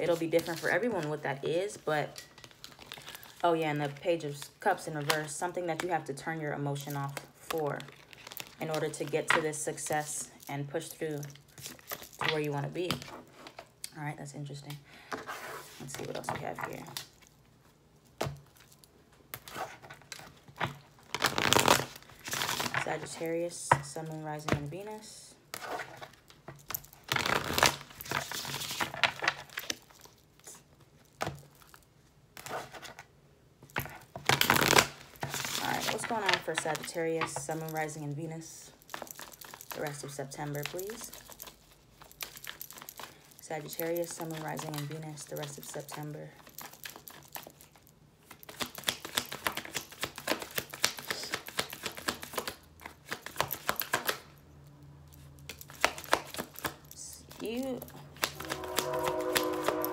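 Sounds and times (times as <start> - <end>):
cards shuffling: 19.3 - 23.2, 25.6 - 30.2, 45.4 - 54.2, 55.2 - 59.9.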